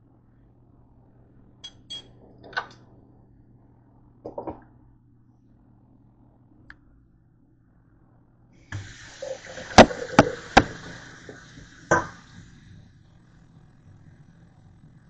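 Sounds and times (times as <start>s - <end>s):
tap water running into sink: 8.8s - 12.5s.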